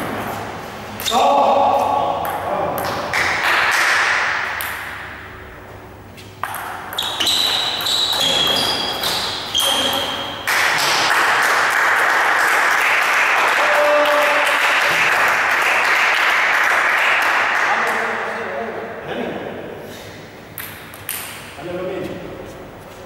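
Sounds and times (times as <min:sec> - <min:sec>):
table tennis ball hits: 0:02.2 - 0:05.3, 0:06.4 - 0:11.8.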